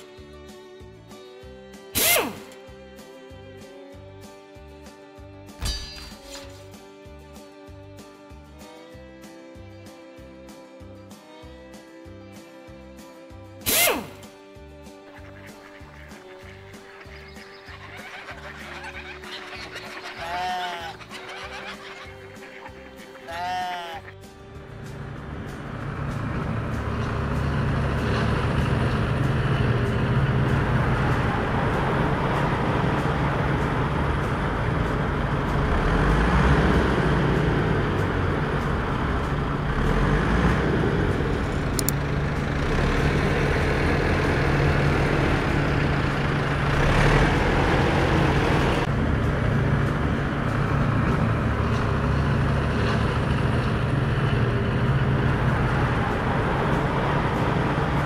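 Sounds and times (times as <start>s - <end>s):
tractor engine running: 15.0s - 23.3s, 24.0s - 58.0s.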